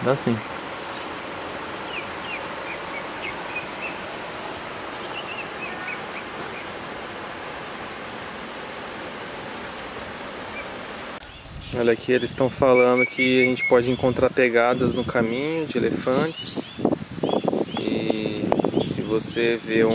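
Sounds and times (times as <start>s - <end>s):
stream wash: 0.0s - 11.2s
bird chirping: 1.8s - 6.8s, 8.8s - 19.2s.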